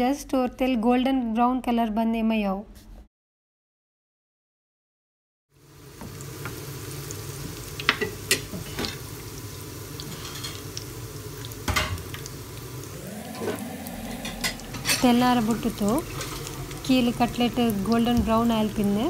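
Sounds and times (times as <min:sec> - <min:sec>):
food sizzling in hot oil: 0:05.5 - 0:19.0.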